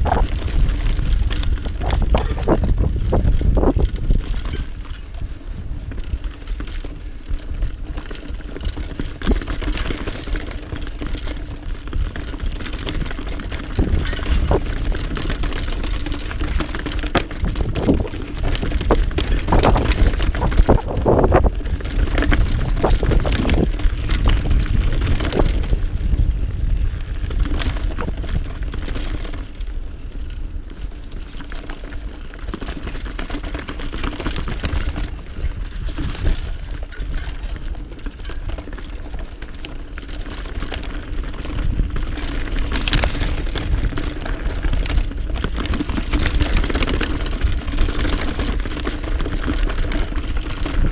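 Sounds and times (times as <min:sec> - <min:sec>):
tyres crunching over stones: 0:00.0 - 0:05.2, 0:07.8 - 0:26.0, 0:30.9 - 0:50.9
bike rattling and knocking: 0:00.0 - 0:50.9
wind rumble on microphone: 0:00.0 - 0:50.9.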